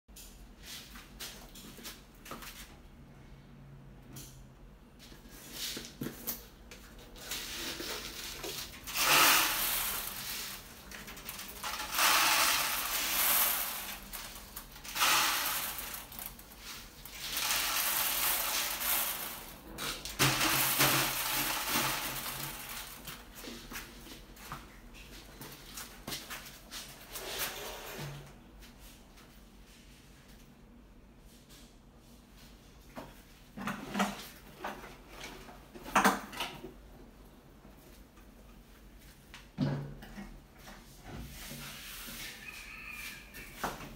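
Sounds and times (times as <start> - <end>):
dry grain rattling into glass tank: 7.3 - 23.2.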